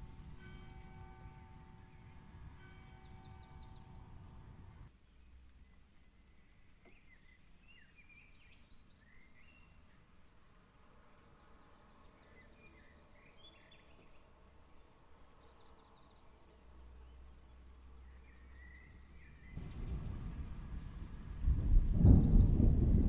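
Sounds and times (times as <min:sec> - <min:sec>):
birds chirping and trilling: 0:00.0 - 0:04.9, 0:18.2 - 0:22.7
low background rumble: 0:00.0 - 0:04.9, 0:19.4 - 0:23.0.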